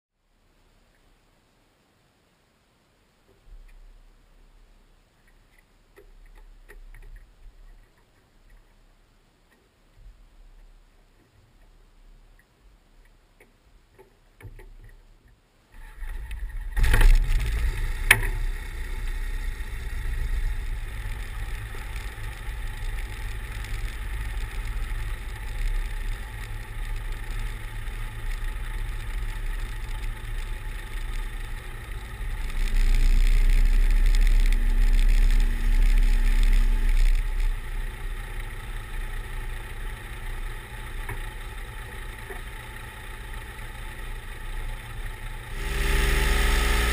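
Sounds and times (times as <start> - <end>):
faint clicks: 3.2 - 3.9, 5.2 - 8.8, 9.4 - 45.5
light aircraft engine running: 15.8 - 46.9.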